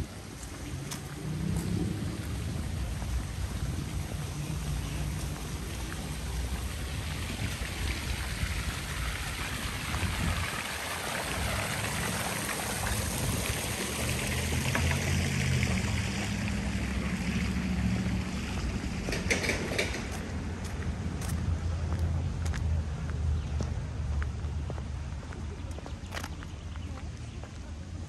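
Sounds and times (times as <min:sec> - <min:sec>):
falling water hissing: 0:00.0 - 0:19.1
low rumble: 0:00.6 - 0:08.8.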